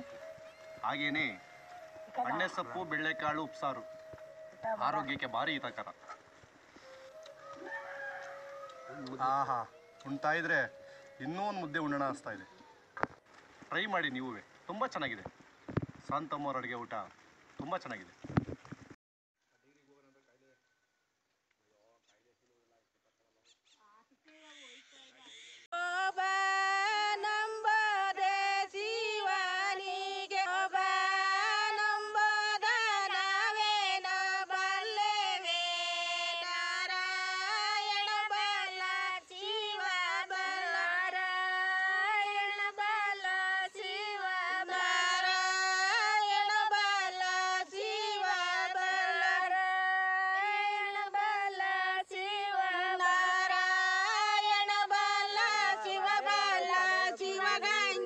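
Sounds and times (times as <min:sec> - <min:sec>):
women singing unaccompanied: 0:25.8 - 0:58.0.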